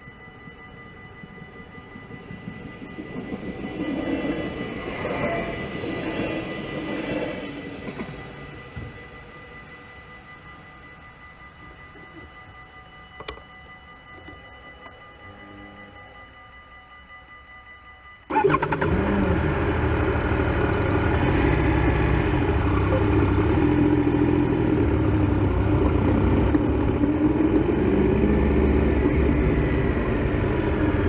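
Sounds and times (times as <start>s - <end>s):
motorcycle engine starting and running: 18.3s - 31.0s.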